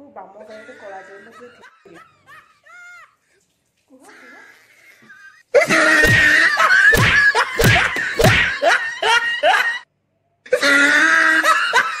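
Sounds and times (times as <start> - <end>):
heavy slaps or thumps: 6.0 - 8.6.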